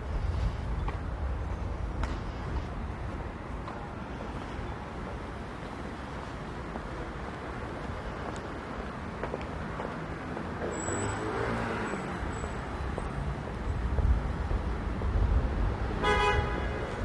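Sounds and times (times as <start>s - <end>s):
street traffic rumbling: 0.0s - 17.0s
car horn toot: 16.0s - 17.0s.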